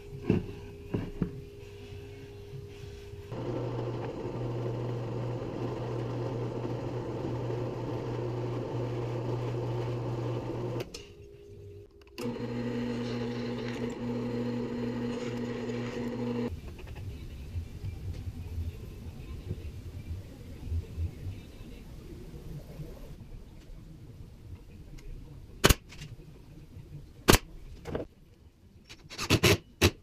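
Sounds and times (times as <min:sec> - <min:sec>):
drill press motor humming: 0:03.3 - 0:10.9, 0:12.1 - 0:16.5.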